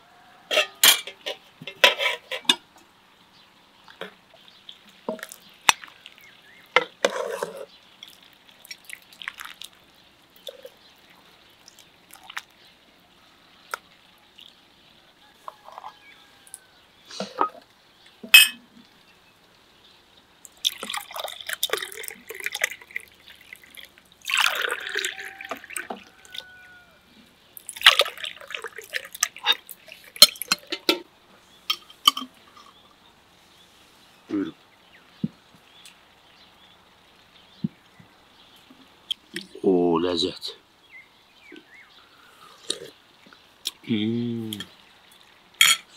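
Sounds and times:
glass and dishes clinking: 0.5 - 2.6, 18.2 - 18.7, 31.7 - 32.3, 45.6 - 45.9
drink pouring and splashing: 4.9 - 12.7, 20.4 - 26.8, 27.6 - 31.0.

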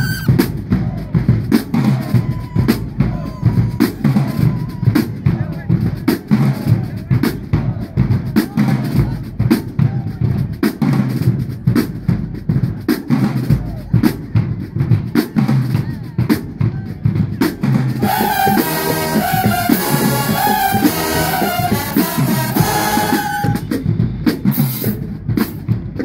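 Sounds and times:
snare and bass drum cadence: 0.0 - 26.0
brass horns playing chords: 18.0 - 23.8.

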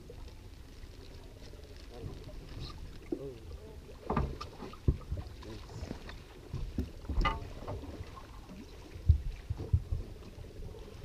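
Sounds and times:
wind rumble on microphone: 0.0 - 11.0
knocks and thumps on boat deck: 4.0 - 7.9.

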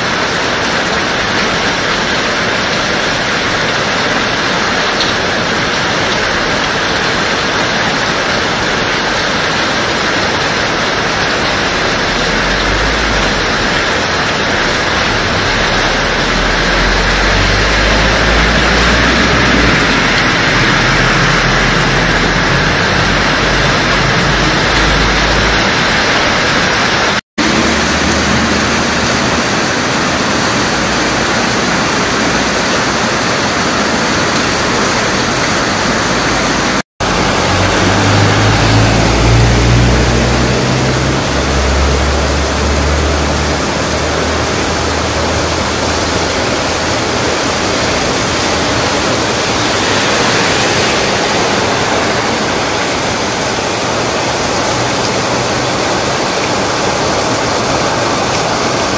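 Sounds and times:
heavy rain pouring: 0.0 - 58.9
low rumble: 11.4 - 26.8, 37.0 - 55.2.

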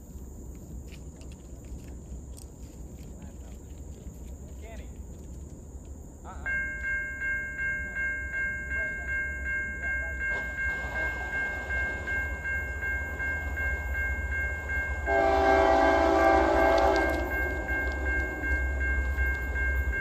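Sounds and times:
electronic crossing bell ringing: 6.5 - 20.0
locomotive air horn blast: 15.1 - 17.7.

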